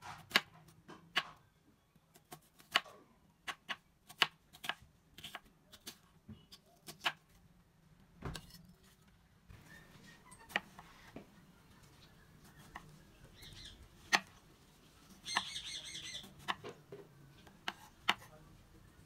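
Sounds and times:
knife slicing tomato: 0:03.4 - 0:07.2, 0:17.6 - 0:18.3.

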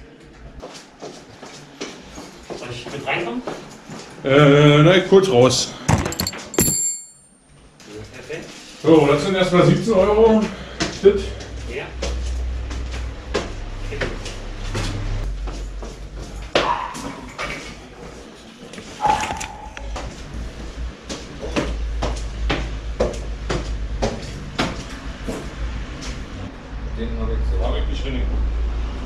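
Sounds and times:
objects clicking and knocking: 0:05.8 - 0:07.3
ringing clinks: 0:05.9 - 0:07.8.

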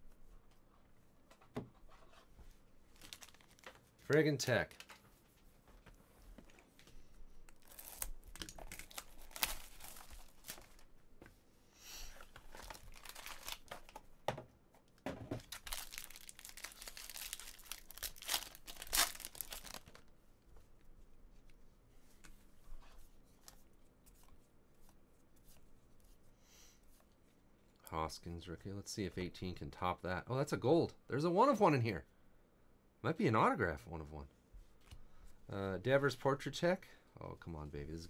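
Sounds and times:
plastic and foil tearing and crinkling: 0:02.9 - 0:04.9, 0:07.6 - 0:10.8, 0:12.4 - 0:14.0, 0:15.4 - 0:20.0
cards rustling: 0:02.9 - 0:05.1, 0:06.4 - 0:10.9, 0:12.2 - 0:14.0, 0:15.4 - 0:20.1.

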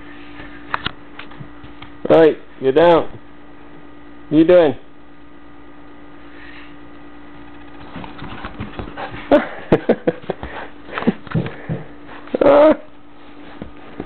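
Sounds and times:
puppy scuffling and sniffing: 0:13.2 - 0:14.0.

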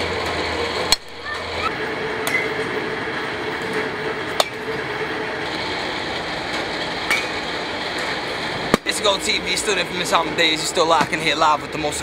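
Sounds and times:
steady background noise: 0:00.0 - 0:12.0
baseball bat cracking balls: 0:08.6 - 0:09.0.

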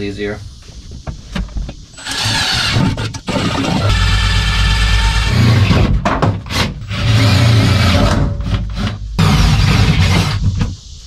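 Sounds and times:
cordless drill driving screws: 0:02.0 - 0:05.7.

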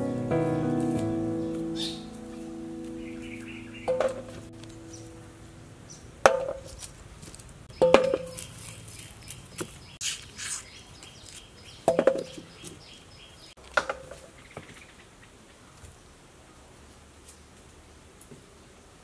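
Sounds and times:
birds chirping: 0:00.0 - 0:06.9, 0:07.6 - 0:13.6.

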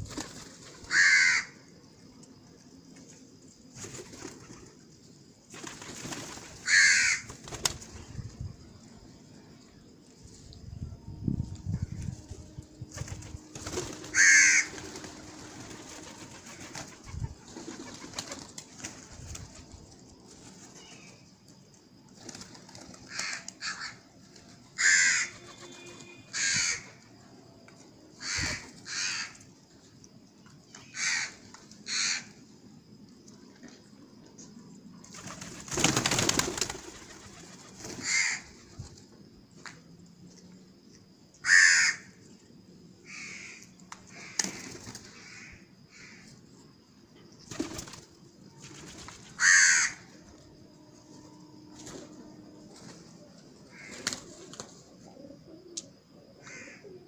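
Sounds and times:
crows cawing: 0:00.8 - 0:01.7, 0:06.6 - 0:07.4, 0:14.1 - 0:14.8, 0:23.1 - 0:24.0, 0:24.8 - 0:27.0, 0:28.2 - 0:29.5, 0:30.9 - 0:32.4, 0:38.0 - 0:38.6, 0:41.4 - 0:42.2, 0:43.0 - 0:46.3, 0:49.4 - 0:50.2, 0:53.7 - 0:54.1, 0:56.4 - 0:56.9
pigeons cooing faintly: 0:43.0 - 0:57.0.

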